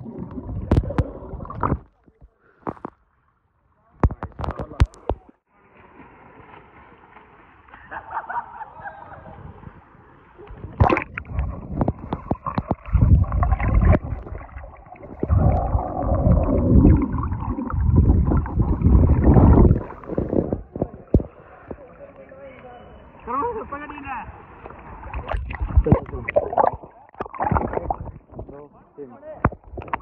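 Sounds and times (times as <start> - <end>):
muffled underwater gurgling: 10.7 - 21.9, 25.1 - 28.6.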